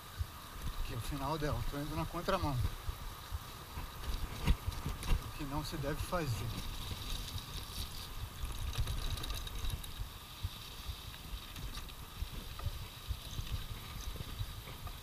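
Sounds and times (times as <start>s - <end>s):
bike rattling clicks: 6.6s - 10.1s.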